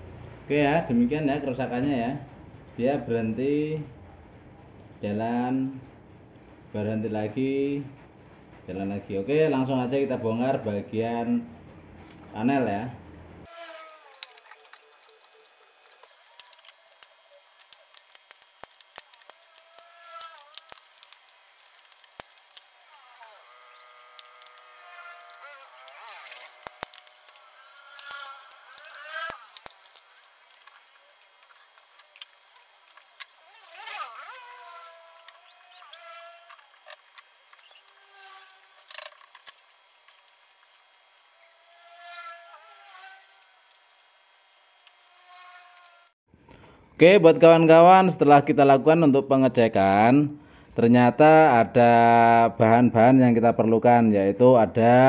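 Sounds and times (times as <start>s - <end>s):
sharp clicks and ticks: 14.2s - 22.8s, 24.1s - 33.4s.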